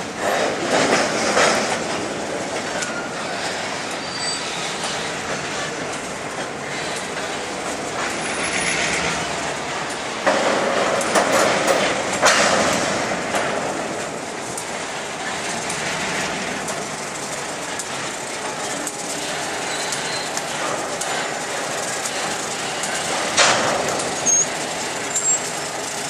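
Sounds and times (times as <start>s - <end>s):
train wheels clacking on rails: 0.0s - 26.0s.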